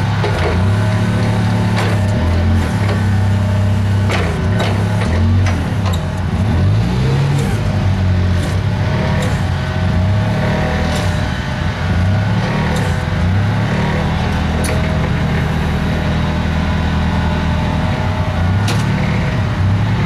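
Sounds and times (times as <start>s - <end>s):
forklift engine running: 0.0s - 20.0s
sharp clicks or knocks: 18.6s - 19.0s.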